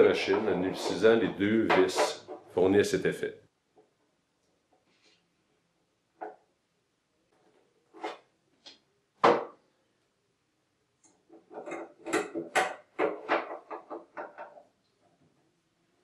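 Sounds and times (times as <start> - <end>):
quick irregular knocks and rattles: 0.0 - 2.6, 11.2 - 14.8.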